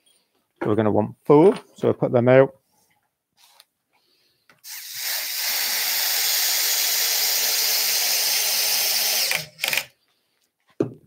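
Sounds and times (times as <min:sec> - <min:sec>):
cordless drill boring into wood: 0:04.6 - 0:10.0.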